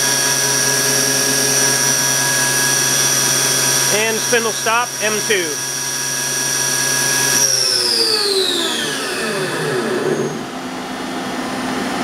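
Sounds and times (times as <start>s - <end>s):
machine hum: 0.0s - 12.0s
machine spindle whine: 0.0s - 12.0s.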